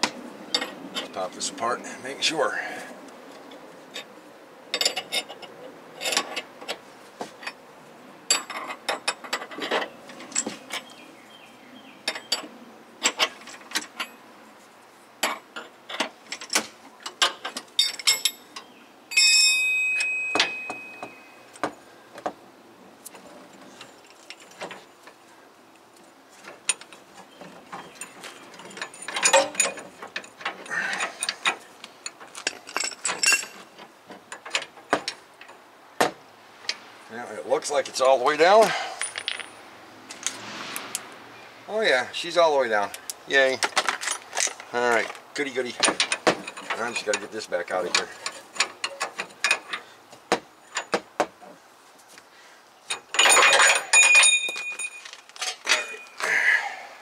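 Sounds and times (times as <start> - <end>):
steel tools clinking: 15.2 - 21.4, 27.8 - 35.6, 38.6 - 40.3, 43.0 - 49.8, 52.9 - 56.3
sharp metallic clang: 19.1 - 21.4.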